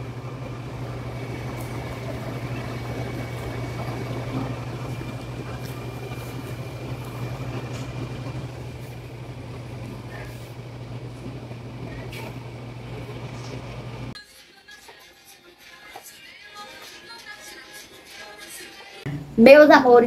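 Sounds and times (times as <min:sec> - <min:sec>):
faint high whine: 0:00.0 - 0:14.2
low machine hum: 0:00.0 - 0:14.2, 0:19.1 - 0:20.0.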